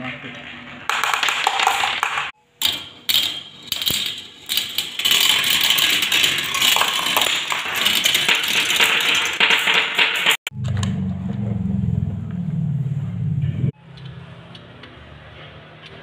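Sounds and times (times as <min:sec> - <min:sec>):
marbles rattling down a plastic track: 0:00.9 - 0:02.3, 0:03.1 - 0:10.5.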